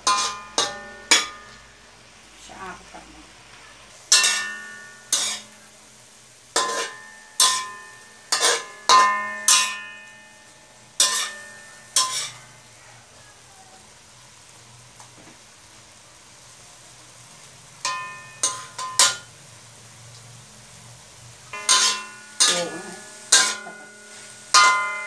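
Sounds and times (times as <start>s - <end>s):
metal spatula clanging on wok: 0.0s - 1.7s, 4.1s - 5.6s, 6.6s - 12.5s, 17.8s - 19.3s, 21.5s - 25.0s
meat sizzling in oil: 0.0s - 25.0s.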